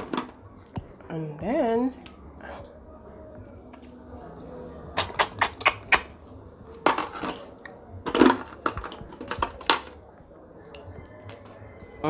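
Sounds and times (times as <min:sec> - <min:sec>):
crab shell cracking: 0:10.9 - 0:11.6.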